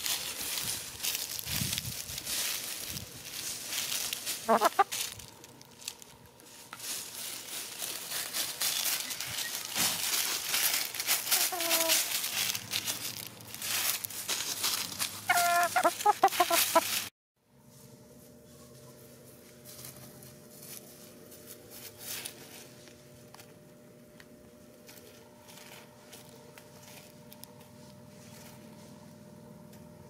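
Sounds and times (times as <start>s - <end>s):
dry leaves crackling: 0.0s - 17.1s, 19.0s - 23.5s, 24.8s - 28.8s
hens clucking: 4.0s - 5.4s, 11.2s - 12.2s, 15.1s - 17.0s.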